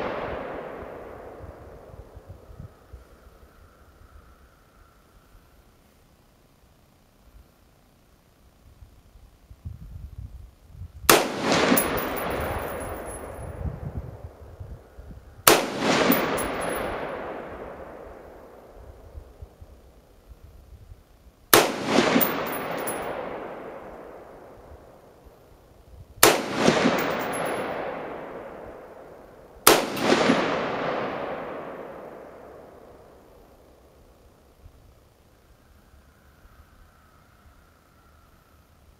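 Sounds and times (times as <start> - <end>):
rifle shots: 0.0 - 1.9, 11.1 - 13.5, 15.4 - 18.7, 21.5 - 24.6, 26.2 - 33.1
gunshot echo and rumble: 0.0 - 2.5, 11.1 - 14.4, 15.4 - 19.2, 21.5 - 25.1, 26.2 - 33.4.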